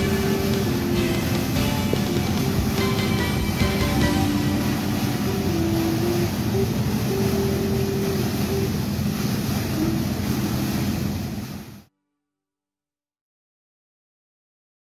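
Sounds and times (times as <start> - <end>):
fountain jets splashing: 0.0 - 11.9.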